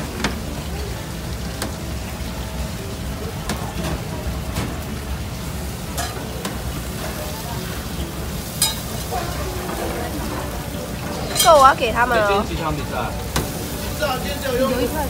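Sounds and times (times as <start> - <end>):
food frying hiss: 0.0 - 15.0.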